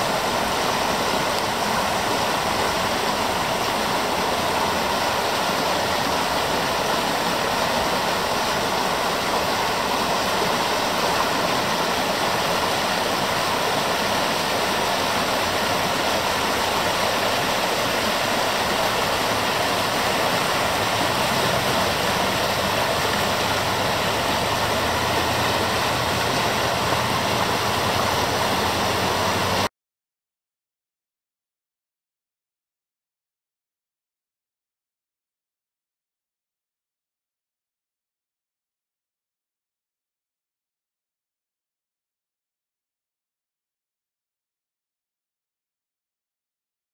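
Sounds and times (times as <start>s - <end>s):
river rushing over rocks: 0.0s - 29.7s.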